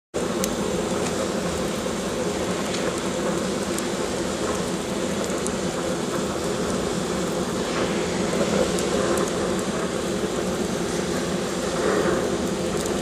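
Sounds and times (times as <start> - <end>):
faint fire crackles: 0.2 - 13.0
fire rushing in a boiler: 0.2 - 13.0.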